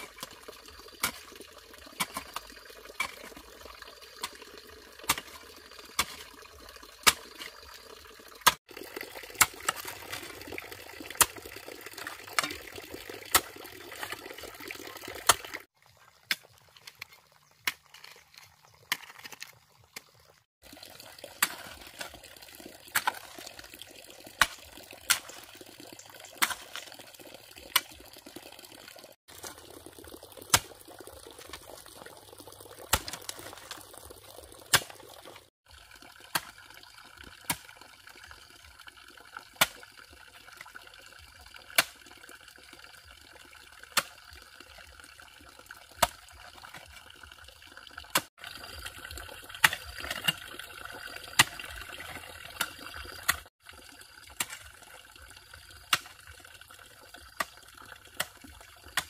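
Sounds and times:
water trickling: 0.0 - 59.0
hoe striking stony earth: 2.0 - 2.4, 3.0 - 3.5, 5.0 - 6.4, 32.9 - 33.8, 49.6 - 50.6.

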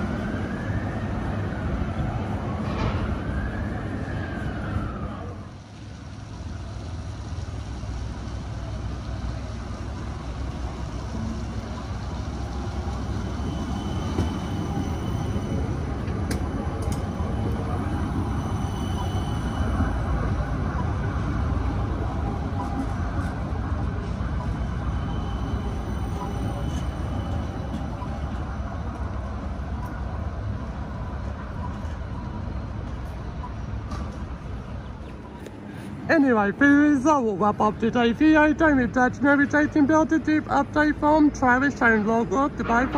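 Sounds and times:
tram rolling rumble: 0.0 - 42.9
thin high whine: 13.1 - 20.4.

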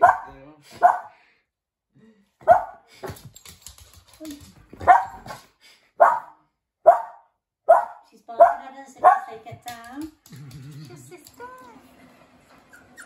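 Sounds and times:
dog barking: 0.0 - 1.2, 2.4 - 2.9, 4.8 - 5.4, 6.0 - 9.4.

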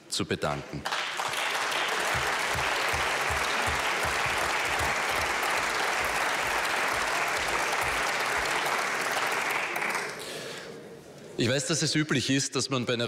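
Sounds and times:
hall full of people clapping: 0.8 - 10.7.

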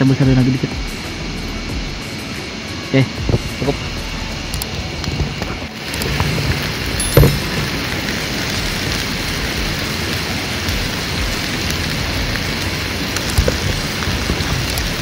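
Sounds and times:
small crackles: 4.5 - 15.0
meat sizzling in a metal pan: 5.7 - 15.0.

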